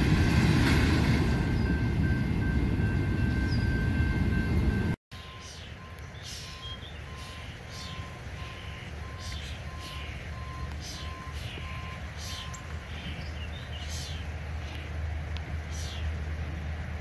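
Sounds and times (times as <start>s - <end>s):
truck backup alarm beeping: 0.7s - 13.2s.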